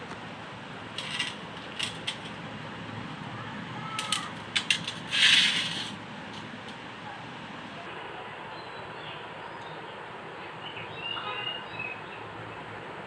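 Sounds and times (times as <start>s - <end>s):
handling noises rubbing and clicking: 0.9s - 2.4s, 4.0s - 6.8s
steady hiss: 4.2s - 7.8s
scrape: 5.0s - 6.0s.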